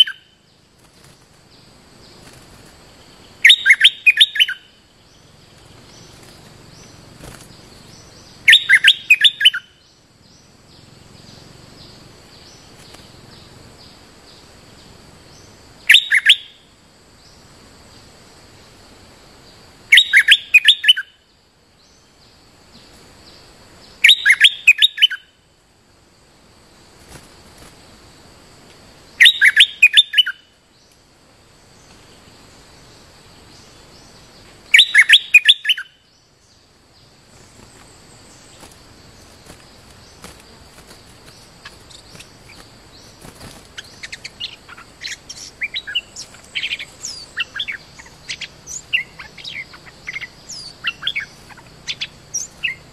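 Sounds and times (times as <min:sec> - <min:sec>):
bulbul chattering song: 0:00.0 - 0:02.4, 0:03.1 - 0:13.6, 0:15.4 - 0:16.6, 0:19.9 - 0:21.2, 0:23.9 - 0:25.4, 0:29.2 - 0:30.6, 0:33.0 - 0:52.9
faint high hum: 0:00.0 - 0:52.9.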